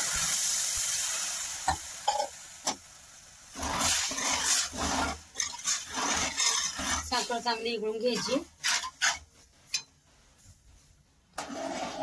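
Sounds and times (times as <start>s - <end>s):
metal spatula scraping pan: 3.6s - 9.9s, 11.4s - 12.0s.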